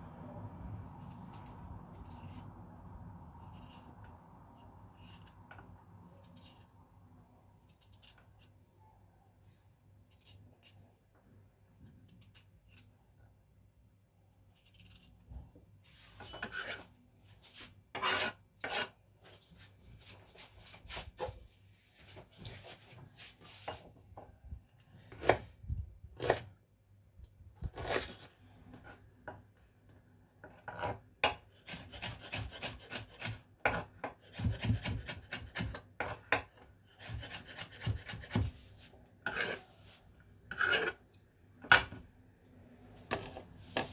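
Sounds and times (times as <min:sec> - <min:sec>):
knife scraping on honing steel: 0:16.2 - 0:16.9, 0:17.9 - 0:19.0, 0:39.2 - 0:39.7, 0:40.5 - 0:41.0
knife chopping on wooden board: 0:30.5 - 0:38.6.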